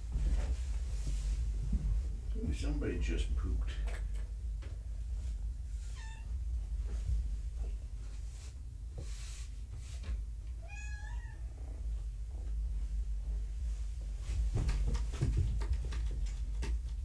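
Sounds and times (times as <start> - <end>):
kitten meowing: 10.6 - 11.4.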